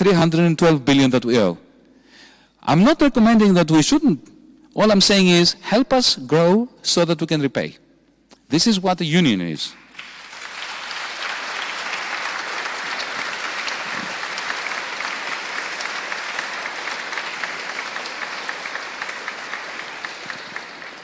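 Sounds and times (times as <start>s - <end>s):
audience applauding: 9.8s - 21.0s.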